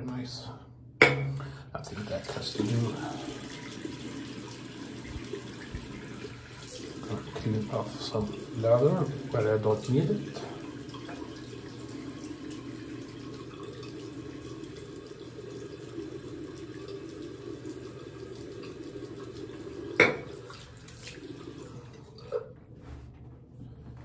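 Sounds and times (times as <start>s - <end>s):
tap running into sink: 4.8s - 6.9s, 19.9s - 21.2s.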